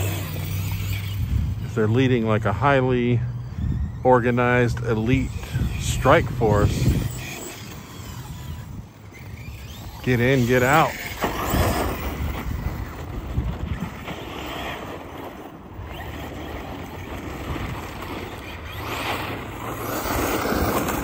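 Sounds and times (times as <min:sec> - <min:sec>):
wind on microphone: 0:00.0 - 0:14.7
radio-controlled car running: 0:00.0 - 0:21.0.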